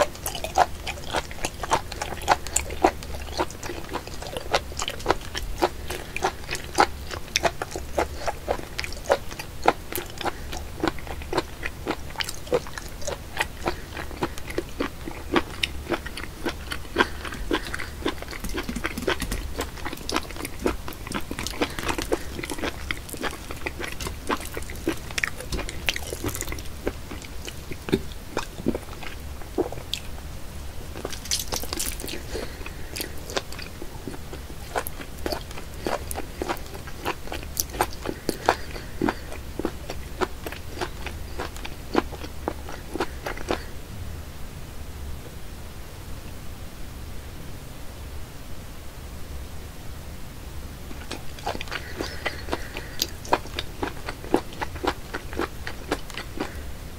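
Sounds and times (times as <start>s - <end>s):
slurping: 0.0s - 30.1s, 30.9s - 43.7s, 51.0s - 56.6s
chewing: 0.0s - 43.8s, 50.9s - 56.7s
wet sticky clicking and smacking: 31.0s - 32.3s.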